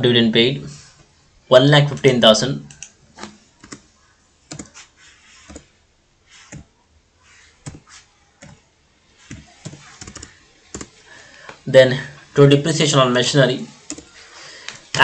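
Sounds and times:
keyboard keys clicking: 3.6 - 3.8, 4.5 - 5.7, 9.3 - 10.9, 13.9 - 14.1.

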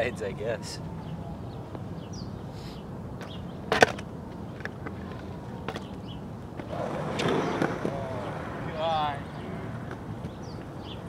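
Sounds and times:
skateboard rolling on concrete: 3.1 - 11.0
skateboard clack: 3.2 - 8.7.

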